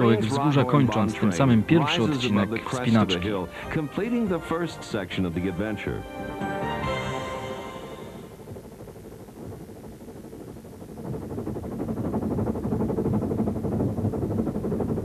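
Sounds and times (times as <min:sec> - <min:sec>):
steam locomotive chuffing: 0:10.3 - 0:15.0.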